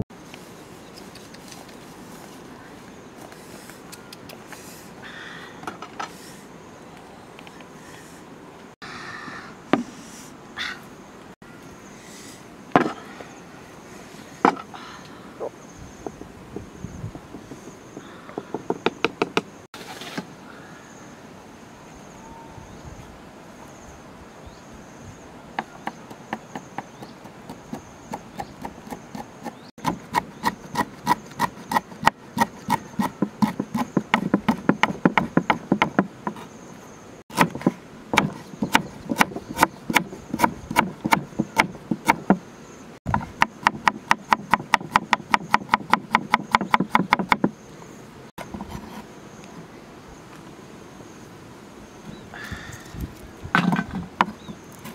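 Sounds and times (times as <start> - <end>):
cleaver chopping on wooden board: 25.6 - 36.4, 37.3 - 42.4, 43.1 - 47.5.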